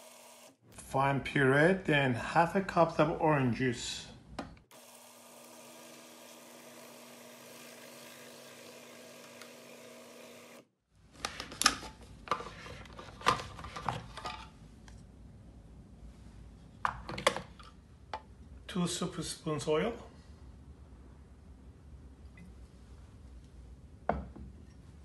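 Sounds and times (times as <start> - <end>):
food processor motor running: 0.0 - 0.5, 4.7 - 10.7.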